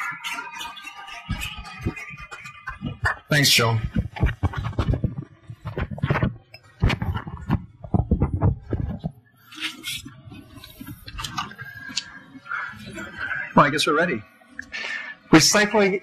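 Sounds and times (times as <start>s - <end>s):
dull thumps and knocks: 1.3s - 9.2s.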